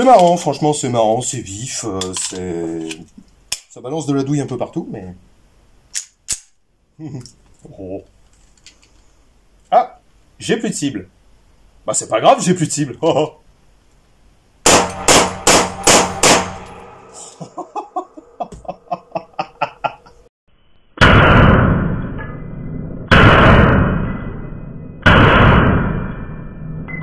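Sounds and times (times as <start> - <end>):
pistol shots echoing indoors: 14.6 - 17.0.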